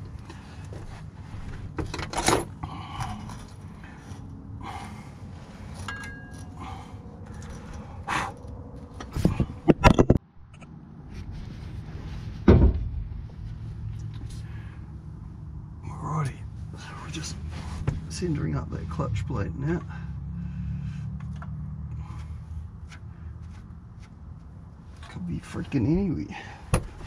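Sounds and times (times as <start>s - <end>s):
steady low hum: 0.0s - 27.0s
metal parts clinking and rattling: 1.8s - 3.9s, 5.7s - 6.6s, 7.2s - 10.2s
heavy thump: 12.4s - 13.2s.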